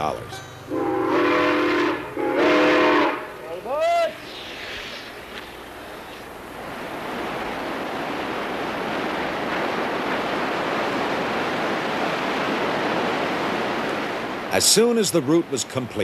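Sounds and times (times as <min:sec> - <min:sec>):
steady rushing noise: 0:03.0 - 0:16.0.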